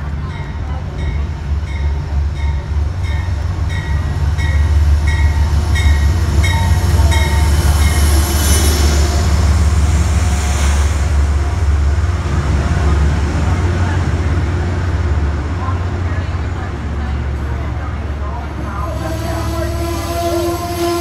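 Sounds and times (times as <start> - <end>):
locomotive engine rumble: 0.0 - 21.0
locomotive bell ringing: 0.2 - 8.4.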